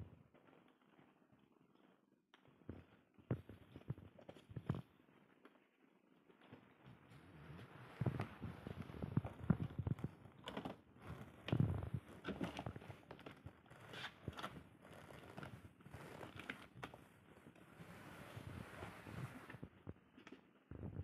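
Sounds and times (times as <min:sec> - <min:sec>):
cardboard boxes rustling and scraping: 0:07.2 - 0:19.6.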